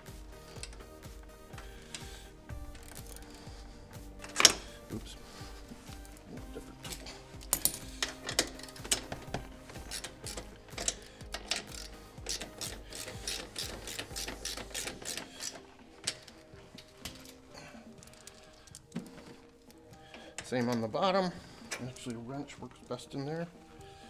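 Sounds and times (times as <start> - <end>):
hand ratchet clicking: 0.0 - 3.6, 4.2 - 4.7, 5.8 - 17.4.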